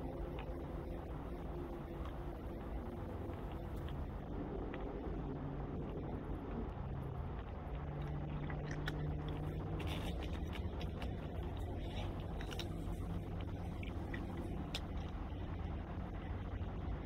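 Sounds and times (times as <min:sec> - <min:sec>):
low steady hum: 0:00.0 - 0:17.0
cats crunching dry treats: 0:07.4 - 0:15.6.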